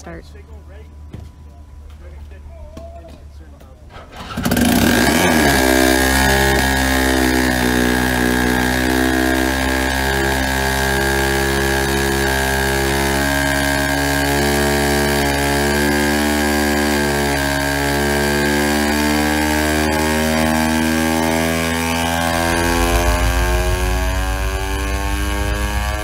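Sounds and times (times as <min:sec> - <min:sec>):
buzzing starter motor: 0:04.0 - 0:26.0
steady high whine: 0:05.2 - 0:26.0
deep turbine rumble: 0:20.4 - 0:26.0.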